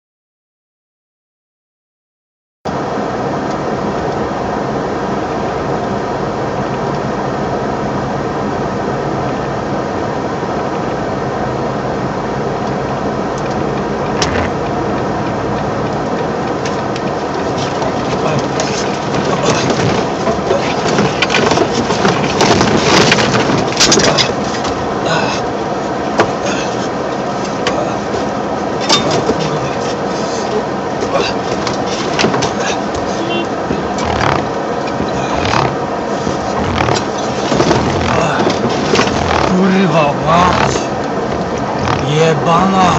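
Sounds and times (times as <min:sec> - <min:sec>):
truck engine and tyre noise: 0:02.7 - 0:42.9
rattling and knocking: 0:16.5 - 0:24.8, 0:31.4 - 0:39.6.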